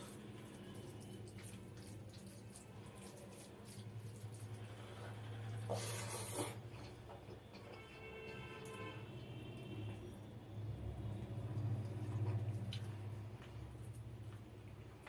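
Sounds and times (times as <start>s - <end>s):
wet eating sound: 0.0s - 8.8s, 9.6s - 15.0s.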